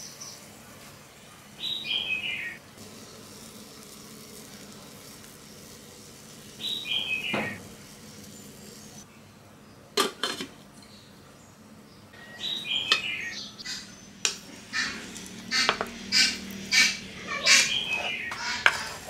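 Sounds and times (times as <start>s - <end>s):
pan knocking and scraping on board: 15.6s - 15.9s, 17.5s - 19.0s.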